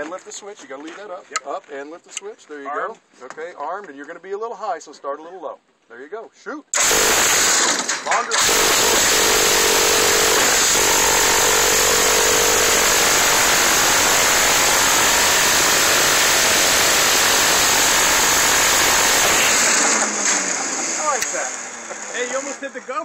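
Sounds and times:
rotary machine gun firing: 6.8 - 21.4.

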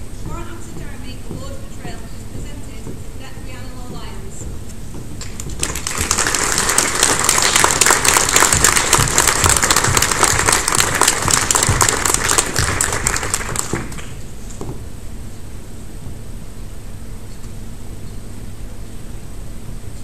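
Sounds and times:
audience applauding: 5.2 - 14.2.

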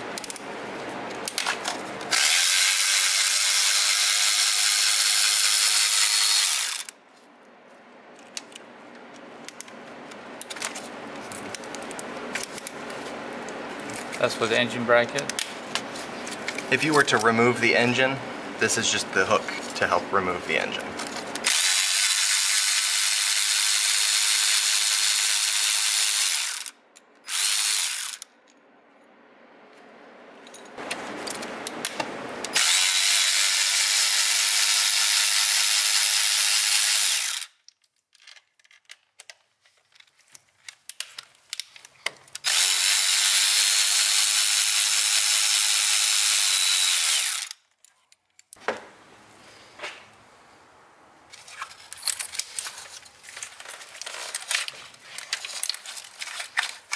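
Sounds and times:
cordless electric ratchet whirring: 2.1 - 7.0, 21.0 - 28.3, 32.5 - 37.6, 42.4 - 47.6.

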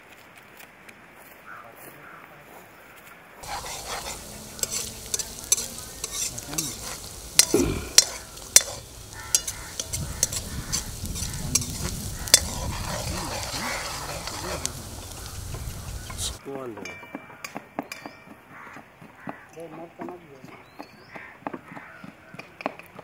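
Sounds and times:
ladle scraping and clinking on pan: 3.4 - 16.4
onions sizzling in hot oil: 3.4 - 16.4.

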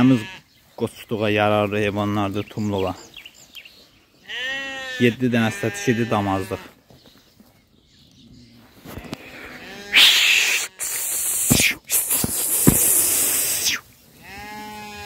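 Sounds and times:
lambs bleating: 0.0 - 0.4, 4.2 - 6.7, 8.9 - 11.6, 14.2 - 15.0.

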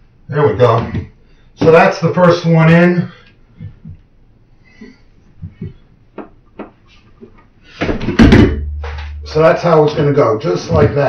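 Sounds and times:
plastic pipe knocking and tapping: 5.4 - 6.8, 7.8 - 9.3
clattering knock: 7.9 - 9.3.

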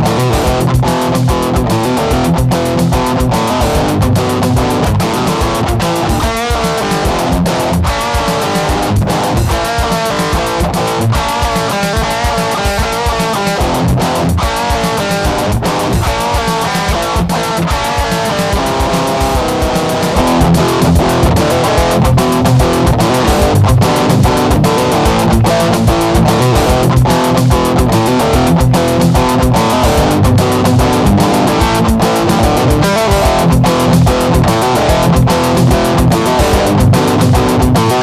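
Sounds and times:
drum machine beat: 0.0 - 38.0
guitar music: 0.0 - 38.0.

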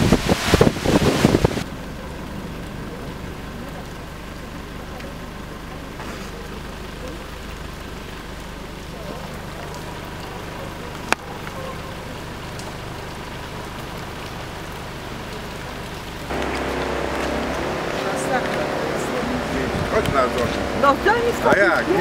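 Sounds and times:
rain on wet pavement: 0.0 - 22.0.

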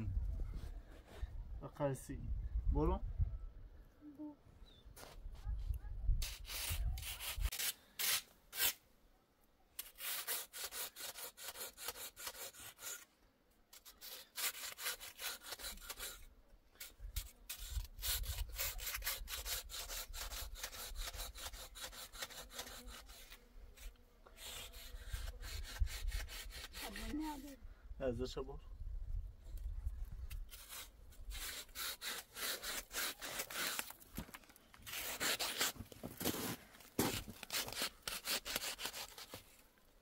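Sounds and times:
rough scraping strokes: 6.2 - 8.8, 9.8 - 13.1, 13.7 - 27.6, 30.5 - 39.6.

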